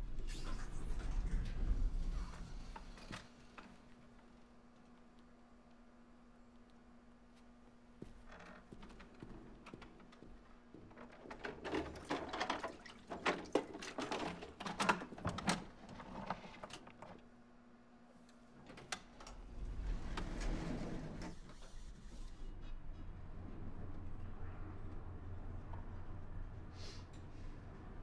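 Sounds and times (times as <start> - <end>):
low rumble: 0.0 - 3.1
elevator doors sliding open: 0.0 - 3.6, 18.8 - 22.4.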